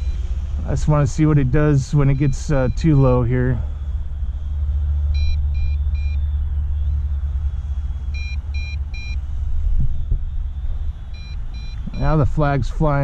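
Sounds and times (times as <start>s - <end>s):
steady low rumble: 0.0s - 13.0s
short high warning beeps: 1.8s - 3.8s, 5.1s - 6.2s, 8.1s - 9.2s, 11.1s - 12.2s.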